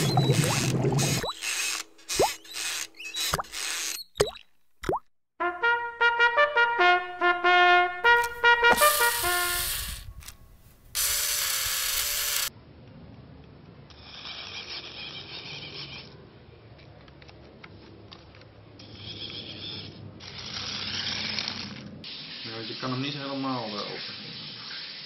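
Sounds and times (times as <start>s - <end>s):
toy car motor whirring: 0.0s - 4.2s, 8.7s - 12.5s, 13.9s - 16.2s, 18.8s - 25.0s
brassy musical notes: 5.4s - 9.7s.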